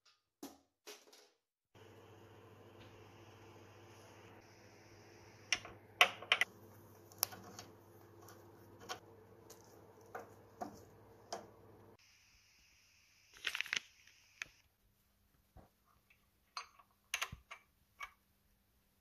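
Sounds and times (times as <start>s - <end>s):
plastic bag crinkle: 13.3s - 14.2s.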